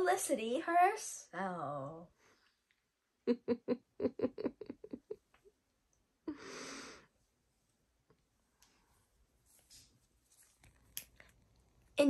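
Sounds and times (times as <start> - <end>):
girl giggling: 3.3 - 5.2.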